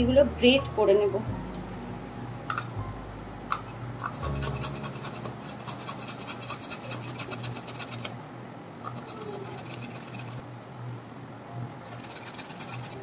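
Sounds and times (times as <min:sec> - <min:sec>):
carrot scraping on grater: 0:04.2 - 0:08.1, 0:08.9 - 0:10.4, 0:11.9 - 0:13.0.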